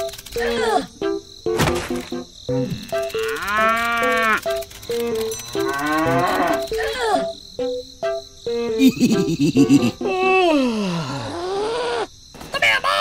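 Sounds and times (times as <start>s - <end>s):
cow mooing: 2.7s - 4.4s, 5.6s - 6.6s.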